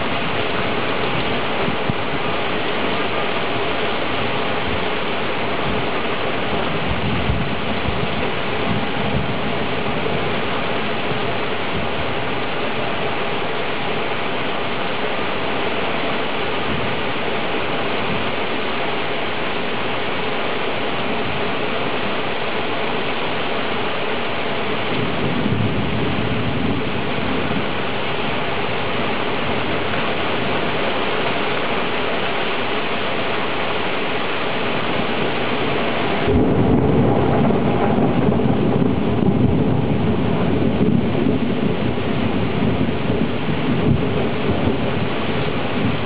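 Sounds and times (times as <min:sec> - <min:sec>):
rain hiss: 0:00.0 - 0:46.0
thunder rumbling: 0:04.2 - 0:13.0, 0:24.3 - 0:31.9, 0:34.8 - 0:46.0.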